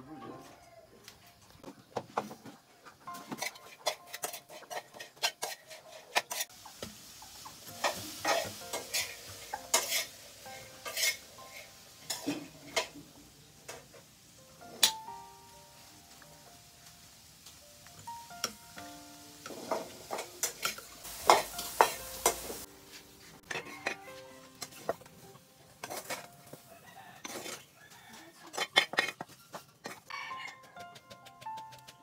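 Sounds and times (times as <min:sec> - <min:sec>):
utensils clinking against dishes: 0:03.1 - 0:06.5, 0:07.7 - 0:14.0, 0:19.4 - 0:27.6, 0:28.4 - 0:32.0
steady sizzling hiss: 0:04.9 - 0:27.9.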